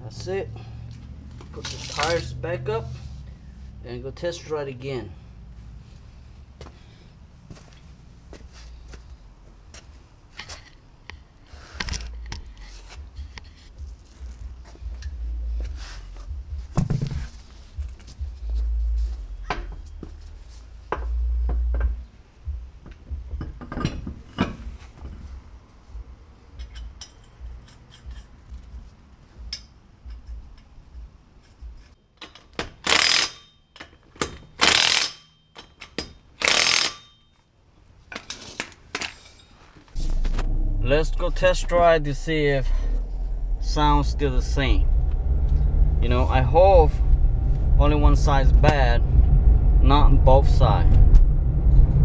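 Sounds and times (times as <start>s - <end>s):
impact wrench bursts: 32.6s - 33.6s, 34.2s - 35.7s, 36.4s - 37.2s.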